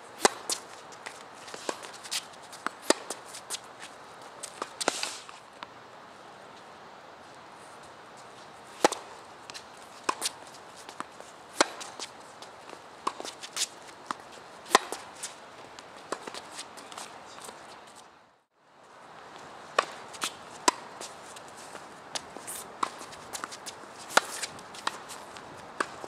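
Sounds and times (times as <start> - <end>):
tennis balls bouncing on court: 0.2 - 5.0, 8.7 - 18.0, 19.3 - 26.0
shoe scuffs on court: 0.2 - 5.5, 7.6 - 18.0, 19.7 - 26.0
tennis balls struck by rackets: 0.2 - 5.7, 8.7 - 17.6, 19.6 - 26.0.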